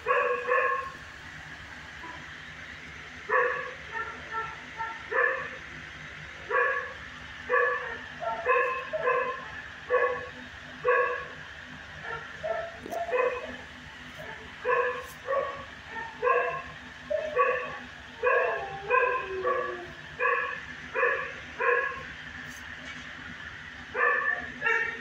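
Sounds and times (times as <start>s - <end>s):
dog barking: 0.0s - 1.0s, 3.3s - 5.6s, 6.5s - 11.4s, 12.0s - 13.6s, 14.2s - 22.1s, 23.9s - 25.0s.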